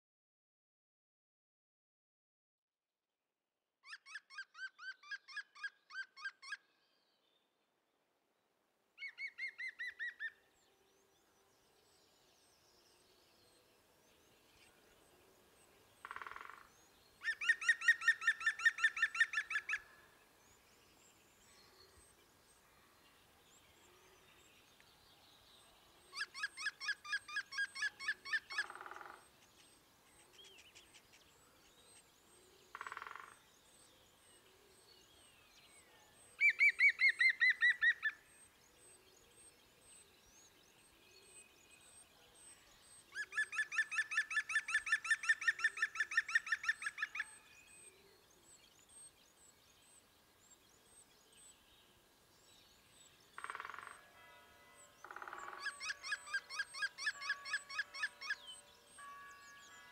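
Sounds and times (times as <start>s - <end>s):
woodpecker laughing call: 17.2s - 19.8s, 26.1s - 29.2s, 43.1s - 47.2s, 55.1s - 58.4s.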